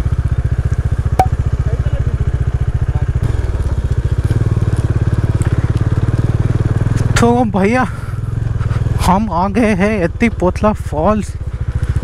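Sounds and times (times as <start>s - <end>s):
motorcycle engine throbbing: 0.0s - 12.0s.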